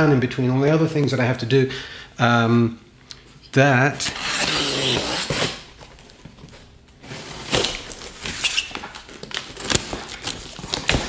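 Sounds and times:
box cutter slicing cardboard: 4.0 - 5.6.

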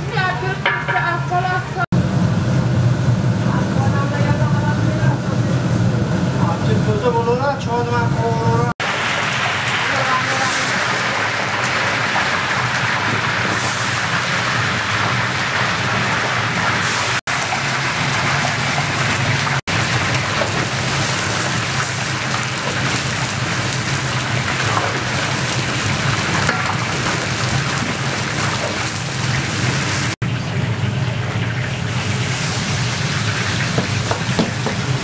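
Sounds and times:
meat and onions sizzling in oil: 8.8 - 35.0.

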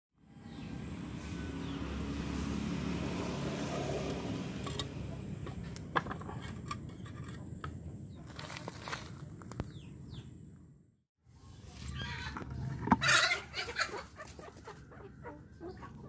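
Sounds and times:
vehicle motor rumble: 0.4 - 8.1.

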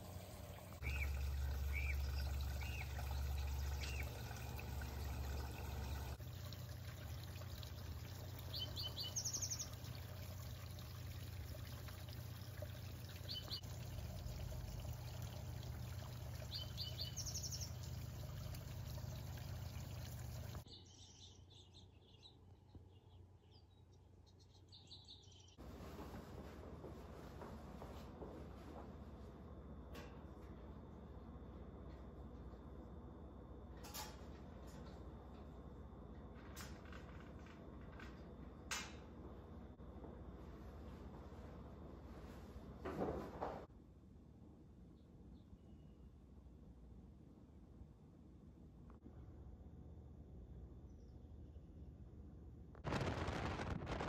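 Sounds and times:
trickling water: 0.0 - 20.7
small birds chirping: 0.5 - 6.2, 8.0 - 10.2, 13.1 - 13.7, 16.1 - 25.6
low rumble: 52.8 - 54.0.

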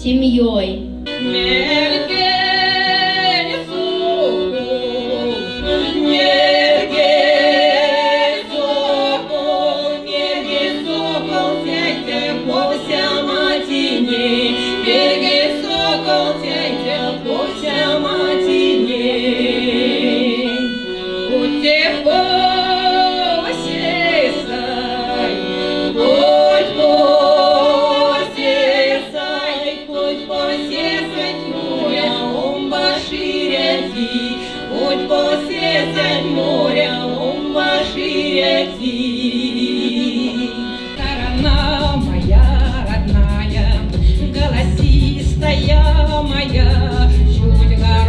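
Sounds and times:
accordion accompaniment: 0.0 - 48.0
women singing folk song: 1.1 - 48.0.

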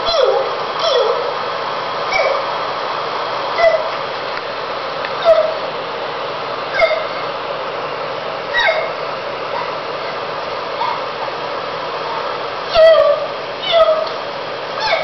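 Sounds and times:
steady hiss: 0.0 - 14.8.

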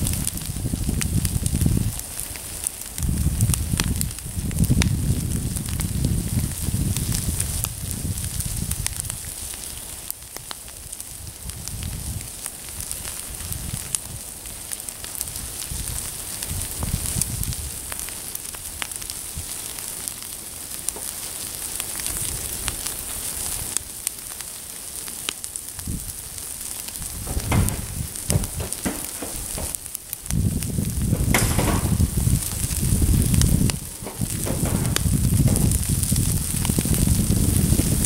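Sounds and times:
wood fire crackling and popping: 0.0 - 38.0
low rumbling: 27.0 - 37.2.

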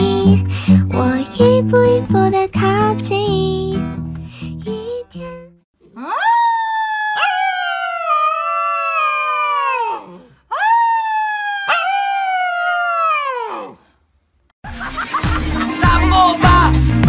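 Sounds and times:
puppy howling: 5.9 - 13.8.

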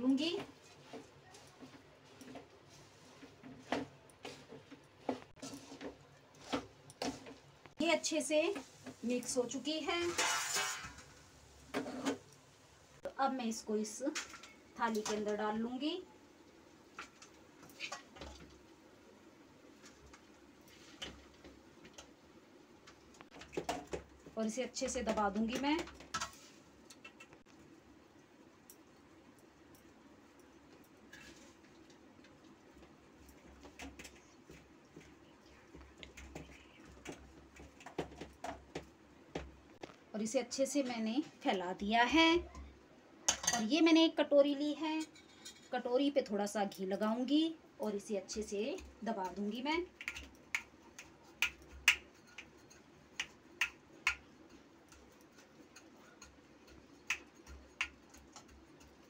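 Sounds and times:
spoon clicking and scraping on plate: 50.0 - 59.0.

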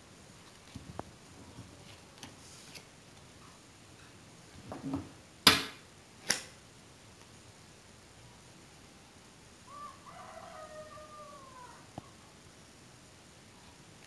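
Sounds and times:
playing cards rustling: 0.4 - 3.3.

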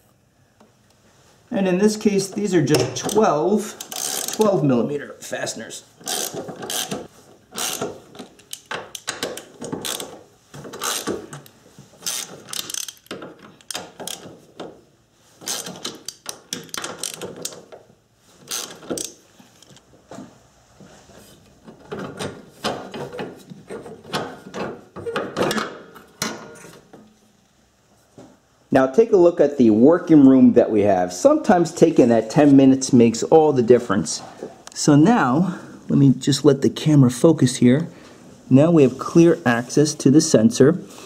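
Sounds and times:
socket ratchet clicking: 2.9 - 4.5, 6.0 - 7.0, 7.6 - 10.2, 10.8 - 14.3, 15.4 - 17.6, 18.5 - 19.8.

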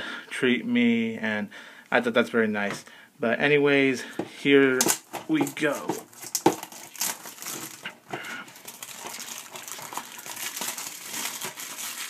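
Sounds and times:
plastic shrink-wrap crinkling: 4.7 - 12.0.

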